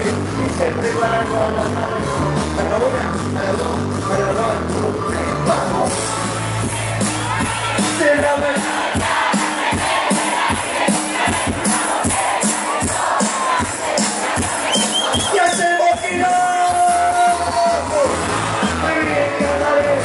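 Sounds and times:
drums and hand percussion: 0.0 - 20.0
live band music over loudspeakers: 0.0 - 20.0
crowd singing along: 6.1 - 16.3.

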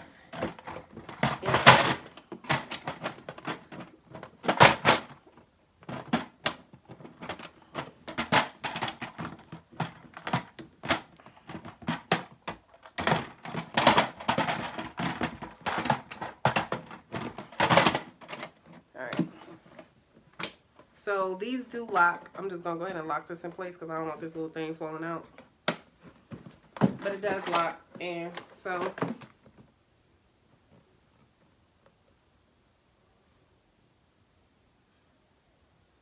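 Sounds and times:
plastic parts knocking and clicking: 0.0 - 20.9, 25.2 - 29.8.

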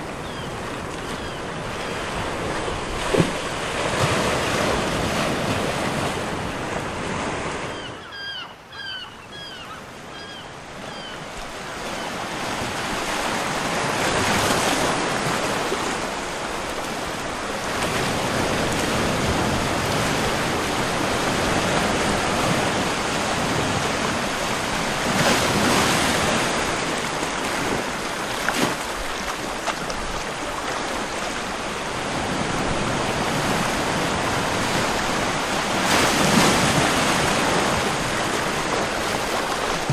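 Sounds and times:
bird chirping: 7.7 - 11.2.

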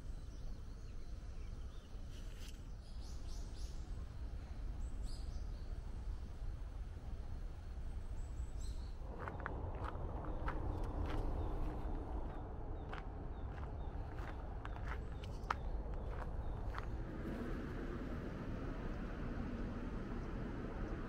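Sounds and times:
low background rumble: 2.8 - 21.0
footsteps on gravel: 9.0 - 17.0.

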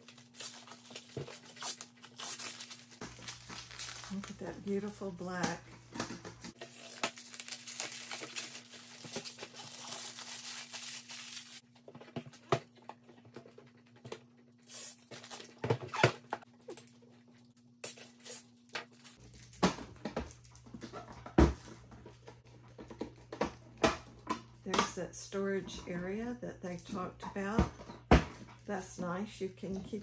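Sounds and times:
plastic wrap crinkling: 0.0 - 5.6, 6.5 - 11.6.

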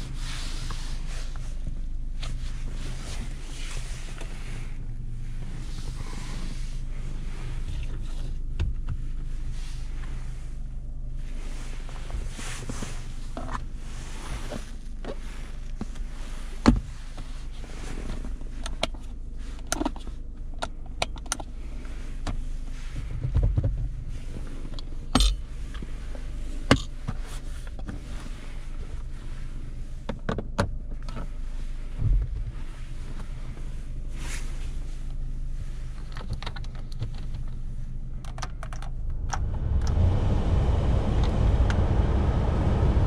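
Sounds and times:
low engine and road drone: 0.0 - 43.0
sharp clicks and knocks in cabin: 18.6 - 21.5, 23.0 - 24.0, 26.7 - 28.0, 30.1 - 31.3, 36.1 - 37.6, 38.2 - 40.0.

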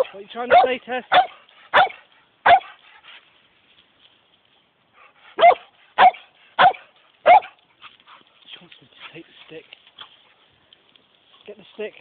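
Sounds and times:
dog barking: 0.0 - 2.8, 5.3 - 7.6.

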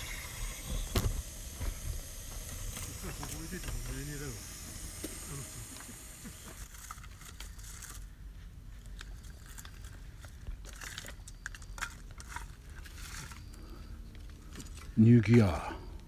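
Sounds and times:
faint rustling and crinkling: 6.6 - 15.5.

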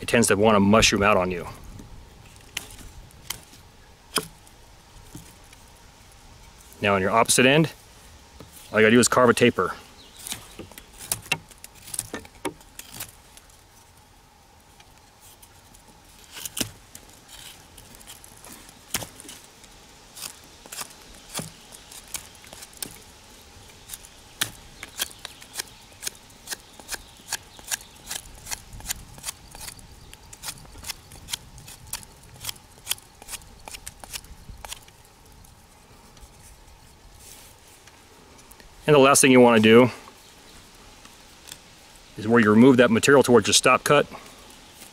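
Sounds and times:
knife shaving wood: 10.1 - 13.6, 15.0 - 35.1.

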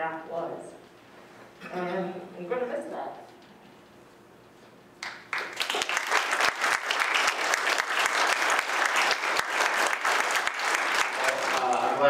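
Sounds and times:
crowd applauding: 5.0 - 12.0.

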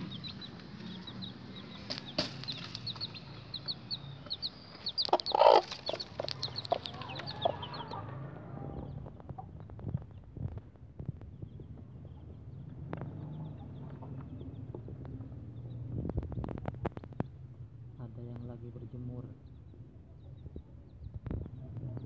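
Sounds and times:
hen clucking: 0.0 - 9.6
chicks peeping: 0.0 - 17.6, 18.2 - 22.0.

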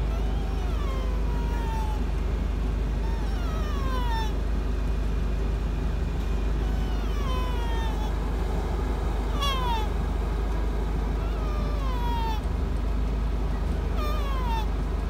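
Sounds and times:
car engine idling: 0.0 - 15.0
deer call bleats: 9.3 - 10.0.

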